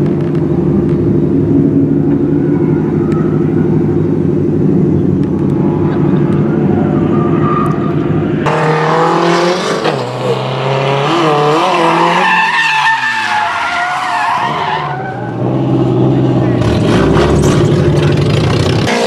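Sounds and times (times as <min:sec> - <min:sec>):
car engines idling: 0:00.0 - 0:08.7, 0:12.3 - 0:19.0
car engines revving: 0:00.0 - 0:19.0
tyres screeching: 0:05.6 - 0:08.9, 0:11.2 - 0:15.5.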